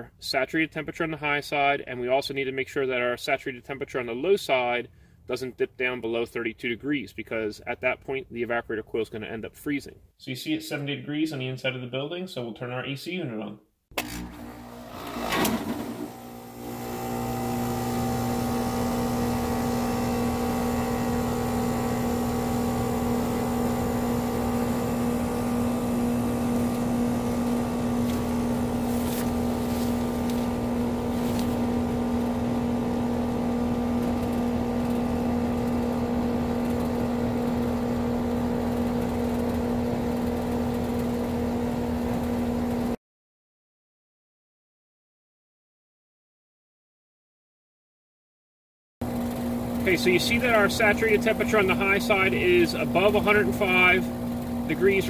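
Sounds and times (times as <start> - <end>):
air conditioner unit humming: 49.4 - 55.0.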